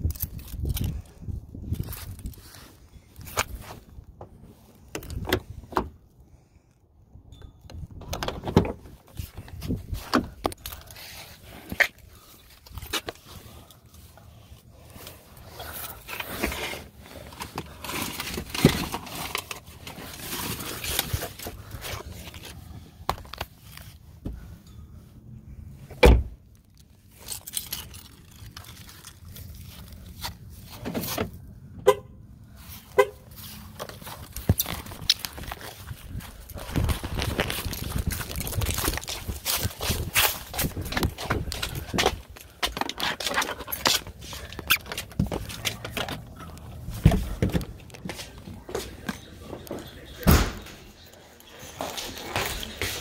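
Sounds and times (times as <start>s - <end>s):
heavy deep thud: 50.3s - 50.8s.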